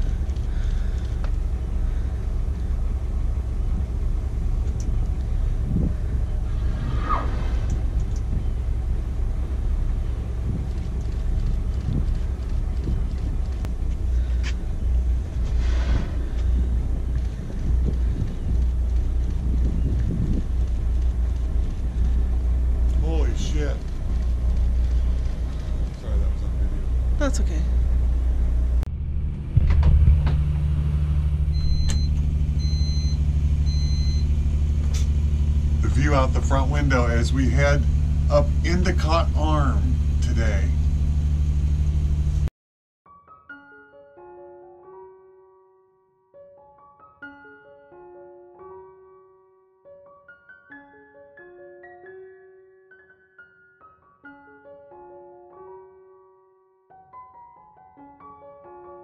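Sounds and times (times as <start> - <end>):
boat engine rumbling: 0.0 - 42.5
short rushing hiss: 6.5 - 7.9, 15.5 - 16.4
electronic device beeps: 31.6 - 34.3.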